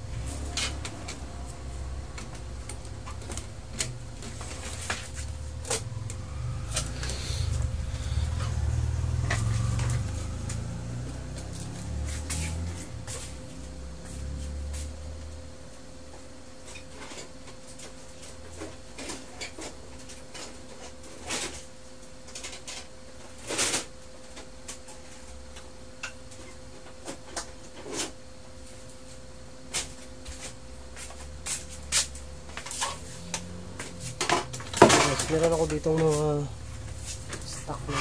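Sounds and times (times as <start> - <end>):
faint hum: 0.0 - 18.4
small parts and tools clattering: 32.0 - 38.0.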